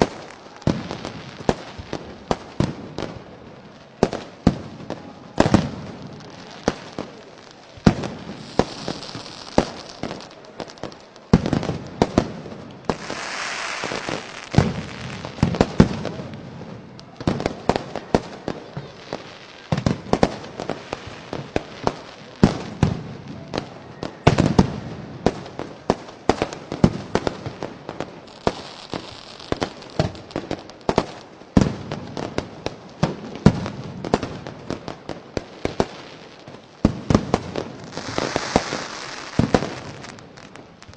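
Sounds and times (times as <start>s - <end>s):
fireworks bangs and pops: 0.0s - 40.9s
firework hiss: 5.4s - 16.3s, 26.4s - 31.2s, 37.1s - 40.9s.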